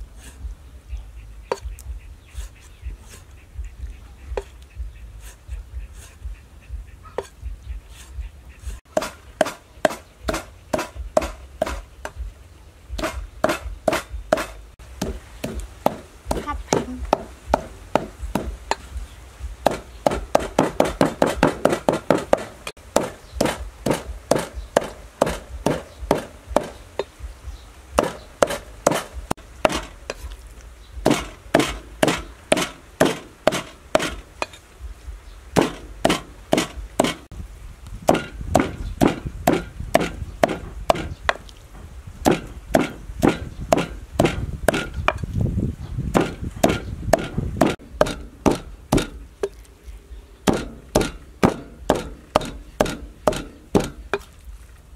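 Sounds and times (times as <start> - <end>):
cleaver chopping on wooden board: 8.9 - 12.2, 13.0 - 18.9, 19.6 - 26.8, 28.0 - 30.2, 31.0 - 34.3, 35.6 - 37.3, 38.1 - 41.4, 42.2 - 45.2, 46.1 - 49.2, 50.5 - 54.3.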